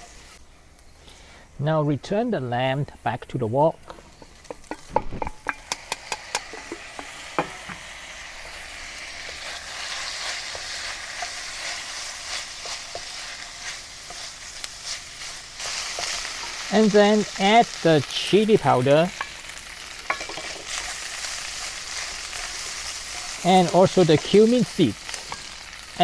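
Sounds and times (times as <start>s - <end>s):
stir-fry sizzling: 0.0s - 1.8s, 2.6s - 26.0s
meat clattering into a wok: 3.8s - 7.9s, 20.0s - 20.8s
wooden spatula scraping wok: 3.8s - 18.3s, 18.9s - 26.0s.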